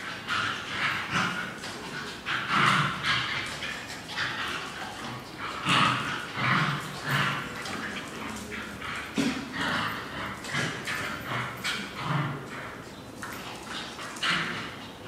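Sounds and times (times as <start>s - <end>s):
dogs barking and yapping: 0.0s - 15.0s.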